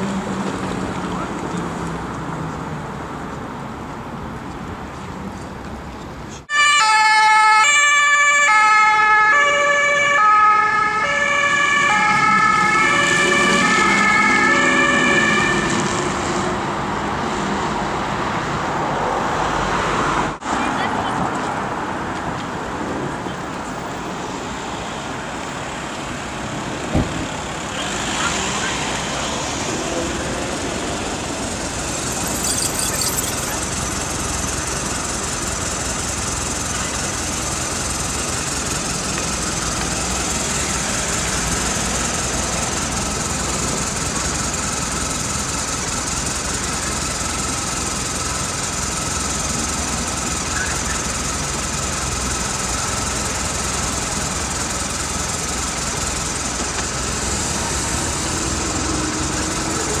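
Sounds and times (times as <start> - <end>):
faint high tone: 32.2 - 33.7.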